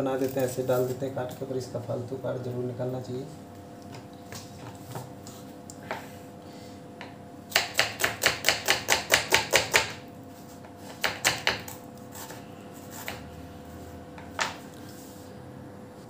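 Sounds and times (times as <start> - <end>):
knife chopping on cutting board: 7.0 - 10.0, 10.6 - 13.4.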